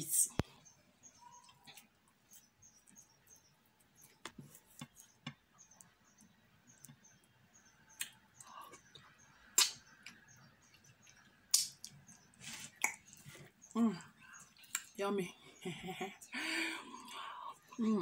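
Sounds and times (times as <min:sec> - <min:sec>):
faint high chirps: 0:00.0 - 0:04.3
wet mouth smack: 0:09.6 - 0:09.8, 0:11.5 - 0:11.9, 0:12.8 - 0:13.0.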